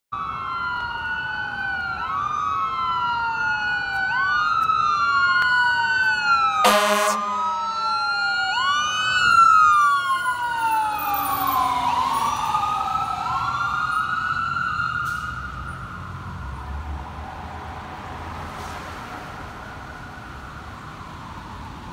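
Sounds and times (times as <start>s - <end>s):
fire engine sirens wailing: 0.1s - 21.9s
air horn blast: 6.6s - 7.4s.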